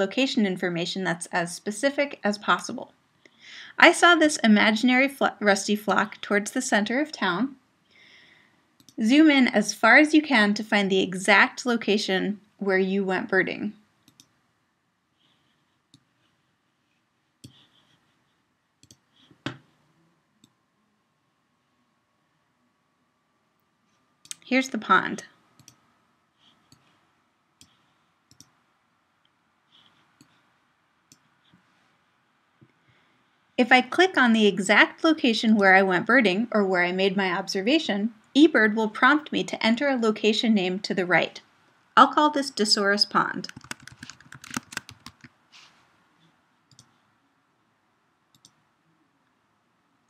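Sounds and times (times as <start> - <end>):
computer mouse clicks: 8.8 - 9.0, 14.0 - 14.4, 18.8 - 19.7, 25.6 - 25.8, 26.5 - 27.0, 27.6 - 28.6, 29.8 - 30.4, 31.1 - 31.6, 43.4 - 45.4, 46.7 - 47.0, 48.3 - 48.6
computer keyboard typing: 25.6 - 25.8, 43.4 - 45.3.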